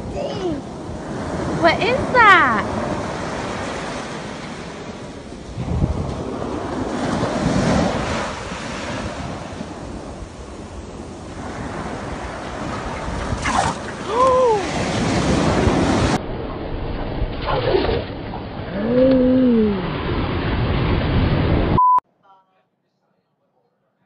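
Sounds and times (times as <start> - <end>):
small waves washing onto sand: 0.0 - 16.2
wind buffeting microphone: 0.0 - 17.4.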